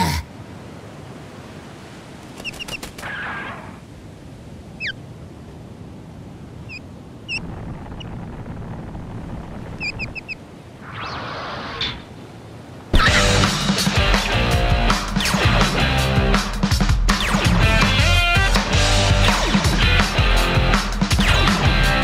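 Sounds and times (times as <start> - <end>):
soft rushing background: 0.7 - 15.6
osprey chirping: 2.4 - 3.6, 4.8 - 5.0, 6.6 - 8.3, 9.6 - 11.2.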